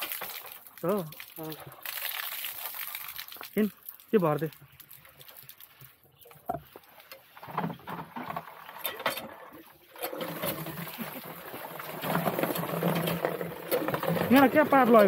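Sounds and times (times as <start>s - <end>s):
water running into bucket: 0.0s - 15.0s
hand pump being worked: 4.9s - 15.0s.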